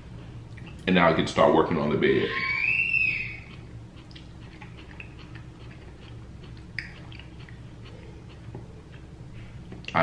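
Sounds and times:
wet mouth clicks from chewing: 3.4 - 9.1.

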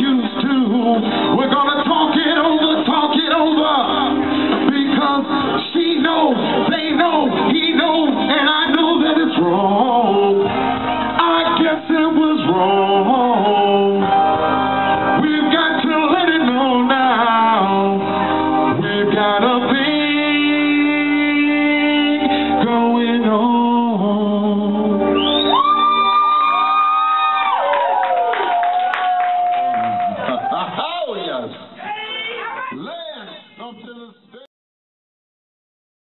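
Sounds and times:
man singing into a microphone: 0.0 - 25.3
backing music: 0.0 - 27.8.

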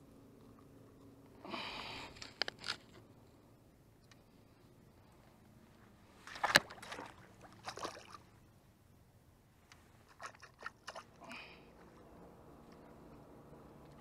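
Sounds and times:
water splashing: 6.2 - 8.4, 10.0 - 12.0.

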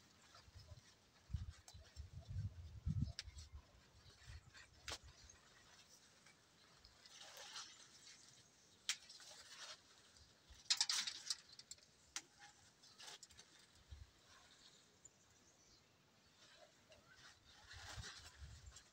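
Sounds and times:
leaves and branches rustling: 0.0 - 18.9
twigs clicking and snapping: 6.2 - 13.8.

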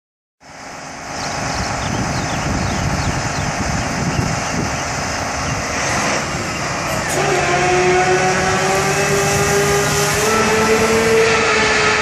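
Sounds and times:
diesel truck engine rumble: 0.4 - 12.0.

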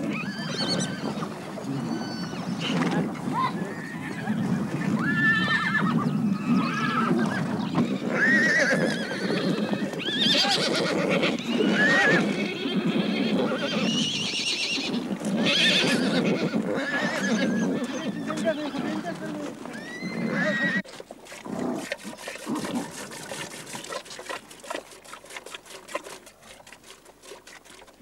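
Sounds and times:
low rumble of herd: 0.0 - 20.8
horses whinnying: 0.0 - 24.4.

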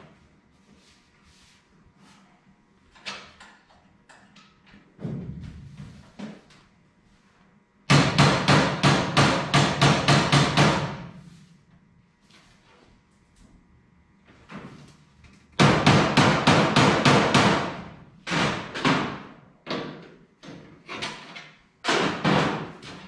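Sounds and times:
hammer striking metal panels: 7.9 - 11.2, 15.6 - 20.7, 21.8 - 23.0.

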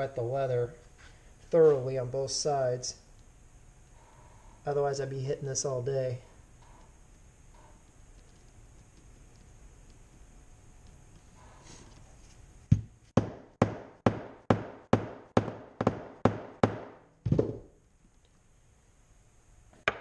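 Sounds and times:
hammer striking hole punch: 13.2 - 17.0.

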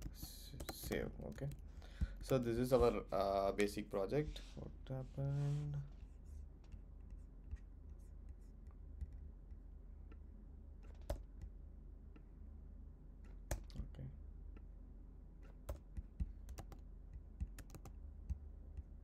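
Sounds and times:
keyboard typing: 0.0 - 3.0, 10.8 - 11.5, 15.4 - 19.0
low hum: 0.0 - 19.0.

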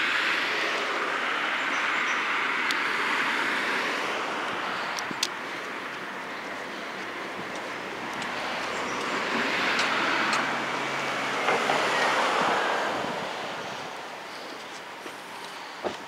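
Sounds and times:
passing vehicle rush: 0.0 - 16.0.

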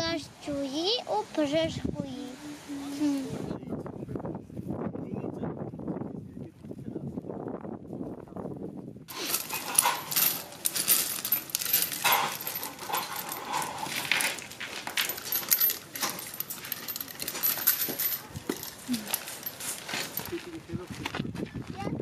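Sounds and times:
metal cartridge cases clinking: 9.1 - 20.3.

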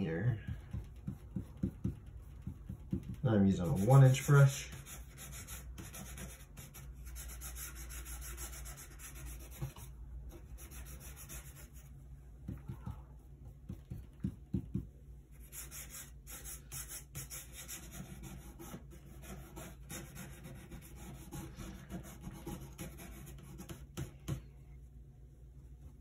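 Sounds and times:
stiff brush scrubbing on wood: 3.3 - 9.8.

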